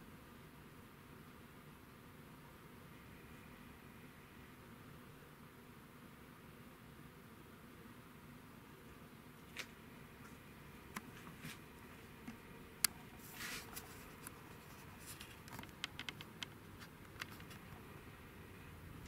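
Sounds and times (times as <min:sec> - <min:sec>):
faint small clicks: 0:15.2 - 0:17.6.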